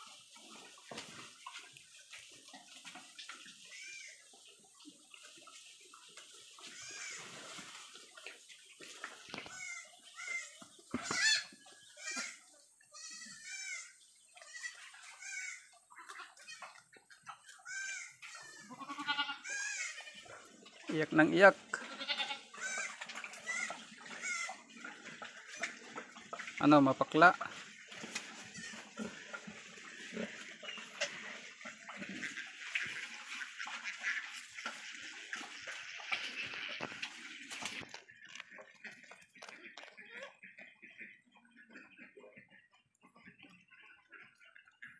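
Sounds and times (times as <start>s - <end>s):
pigs chewing and snuffling: 0.0s - 44.9s
goats bleating: 6.6s - 7.4s, 9.4s - 16.8s, 17.5s - 20.6s, 21.4s - 24.6s, 28.4s - 29.2s.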